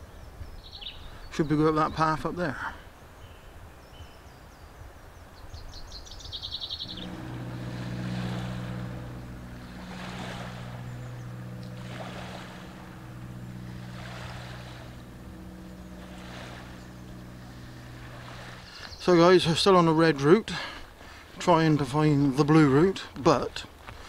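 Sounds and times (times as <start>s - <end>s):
small waves washing: 6.8s - 19.2s
motorboat engine droning: 6.8s - 23.4s.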